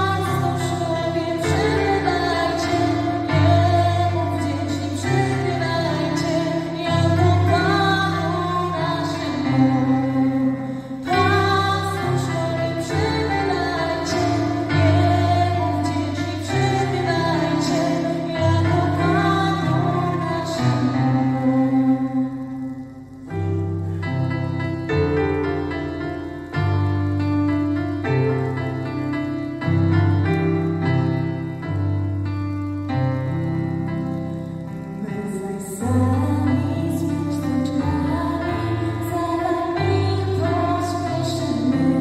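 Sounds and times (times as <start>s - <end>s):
woman singing a carol: 0.0s - 22.8s, 35.0s - 42.0s
keyboard accompaniment: 0.0s - 42.0s.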